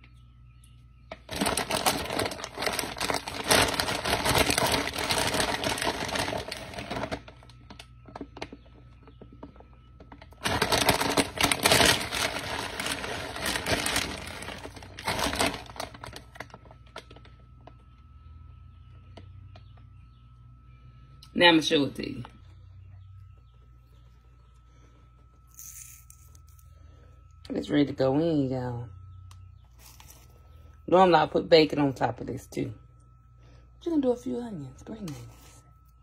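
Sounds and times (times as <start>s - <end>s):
plastic bag crinkling: 1.1s - 9.2s, 10.0s - 17.8s.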